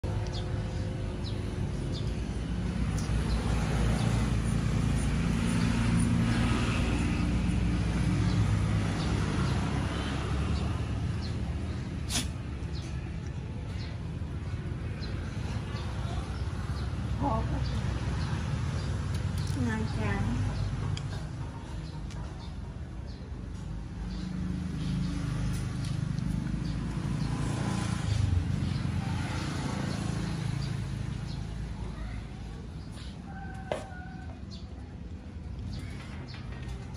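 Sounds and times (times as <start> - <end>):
vehicle engine passing: 0.0 - 36.9.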